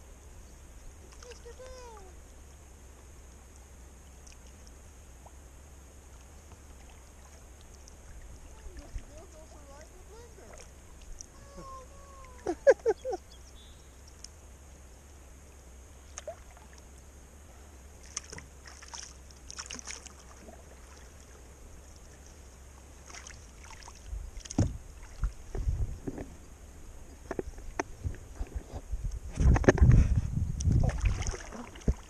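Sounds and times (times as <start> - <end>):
paddle dipping and dripping: 1.0 - 2.4, 3.2 - 14.8, 15.4 - 17.2, 17.8 - 25.6, 30.6 - 32.0
low thumps against boat: 24.2 - 26.4.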